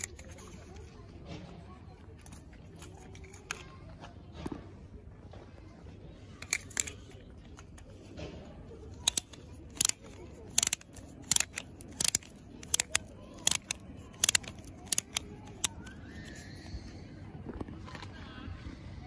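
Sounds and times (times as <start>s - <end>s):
plastic toy clicking: 0.0s - 1.0s, 2.1s - 3.7s, 6.4s - 16.7s.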